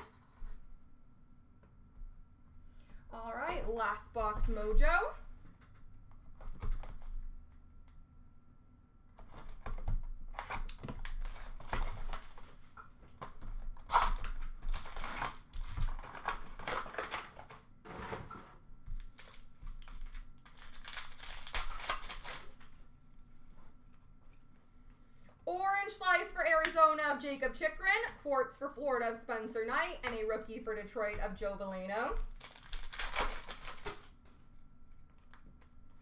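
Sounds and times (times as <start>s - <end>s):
foil card pack crinkling and tearing: 9.2s - 18.2s, 18.9s - 22.8s, 32.2s - 34.2s.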